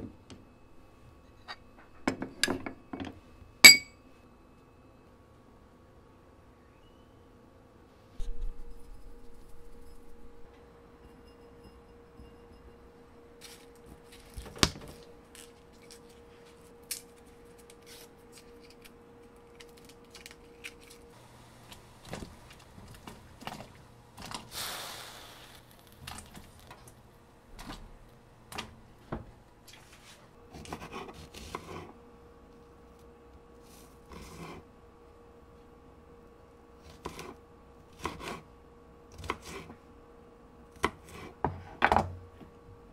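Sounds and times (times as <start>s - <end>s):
bowls and utensils clinking: 3.7s - 3.9s
brief hiss: 24.5s - 25.9s.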